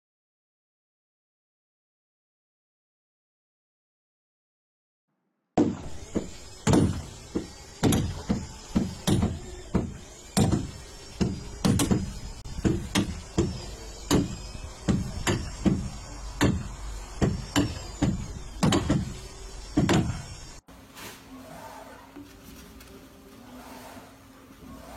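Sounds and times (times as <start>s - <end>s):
hammer blows on wooden planking: 5.6s - 20.6s.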